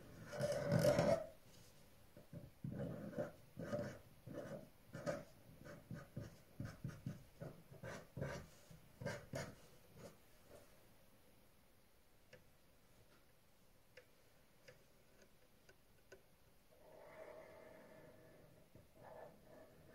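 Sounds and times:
pen drawing on paper: 0:02.6 - 0:10.1, 0:18.9 - 0:19.9.

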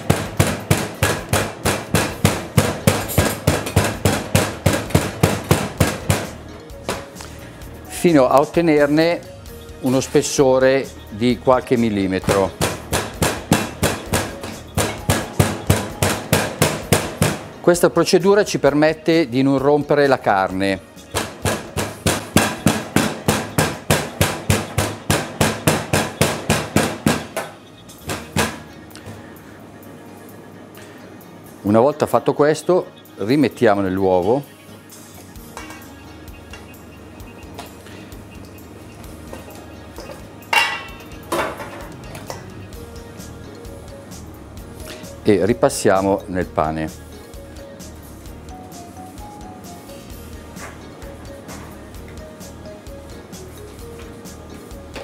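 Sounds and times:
meat pounder thudding: 0:00.0 - 0:07.1, 0:12.2 - 0:17.5, 0:21.1 - 0:28.7.

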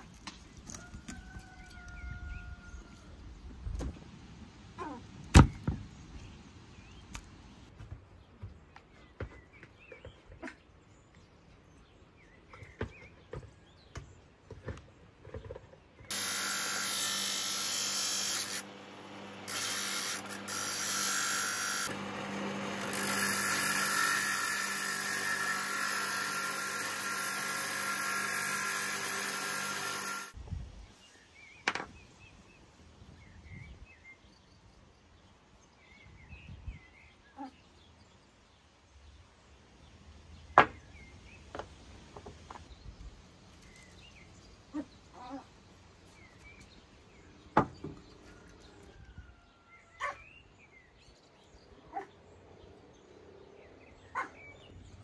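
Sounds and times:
handheld power tool running: 0:16.1 - 0:30.4.

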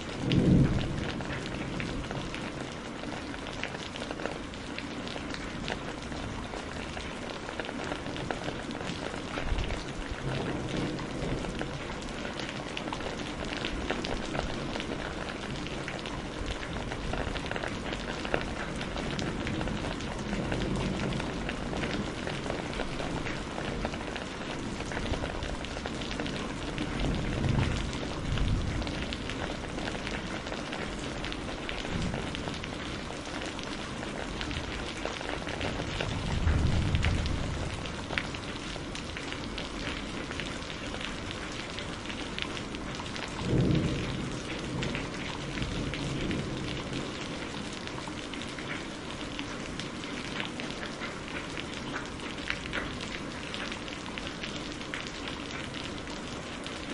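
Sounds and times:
low thunder rumbling: 0:00.0 - 0:03.2, 0:08.3 - 0:47.9
steady rain patter: 0:00.0 - 0:56.9.

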